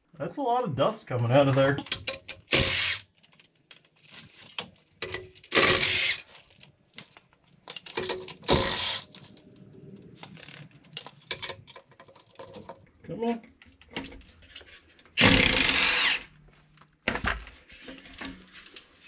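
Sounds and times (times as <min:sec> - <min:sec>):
impact wrench spinning bolts: 0:01.8 - 0:03.0, 0:05.0 - 0:06.3, 0:08.0 - 0:09.3.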